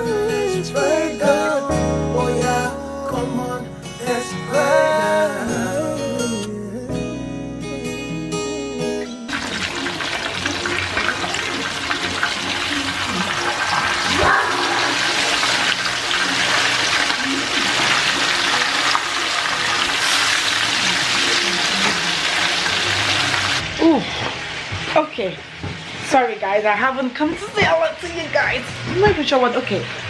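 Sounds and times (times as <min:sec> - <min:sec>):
fish sizzling in hot oil: 0:09.3 - 0:23.7.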